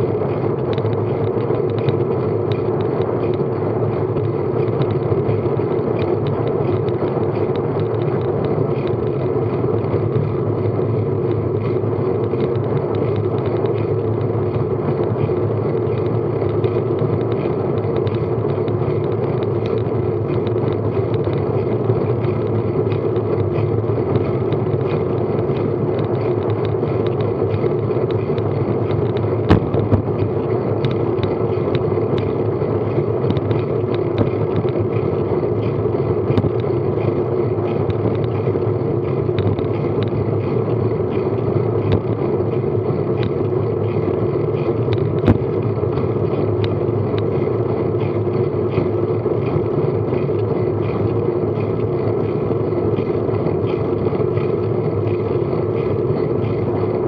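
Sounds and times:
bicycle tyre noise on tarmac: 0.0 - 57.0.

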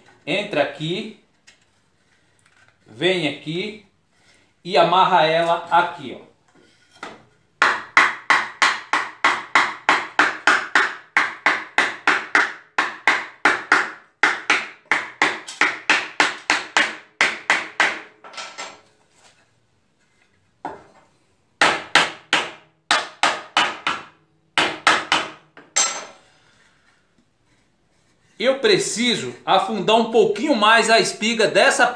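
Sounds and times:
hammer striking wood: 7.0 - 18.1, 21.6 - 26.0.

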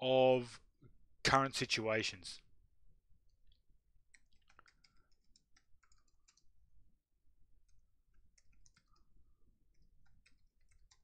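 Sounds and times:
faint keyboard typing: 3.3 - 6.6, 7.6 - 11.0.

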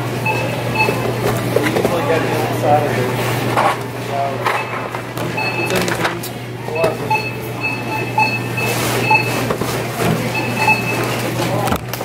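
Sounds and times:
short electronic beeps: 0.2 - 1.0, 5.4 - 5.9, 6.7 - 9.4, 10.3 - 11.0.

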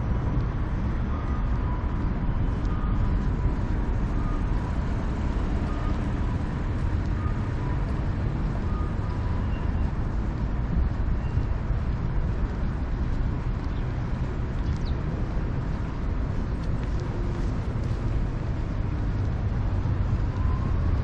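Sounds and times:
city ambience rumble: 0.0 - 21.0
two-tone electronic beep: 4.0 - 6.5.

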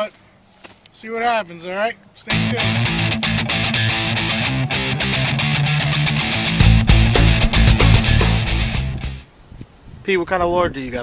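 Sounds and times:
heavy beats: 2.3 - 9.2
rock music with electric guitar: 2.3 - 9.2.

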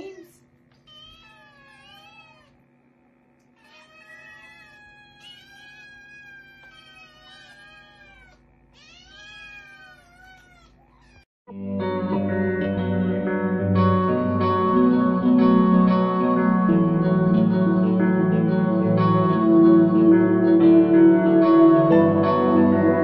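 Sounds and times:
kittens meowing: 0.7 - 2.6, 3.5 - 11.3
guitar music: 11.5 - 23.0.

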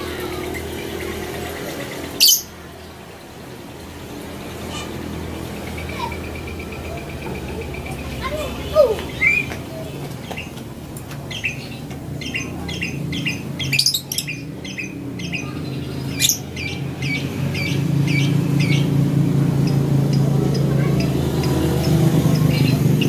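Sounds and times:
bird chirping: 0.3 - 3.0, 5.5 - 10.6, 11.2 - 23.0
shrill bird squawks: 2.2 - 2.6.

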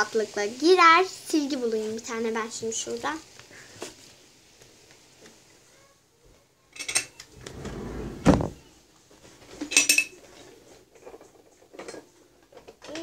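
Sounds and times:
drawer sliding and knocking: 7.4 - 8.7.

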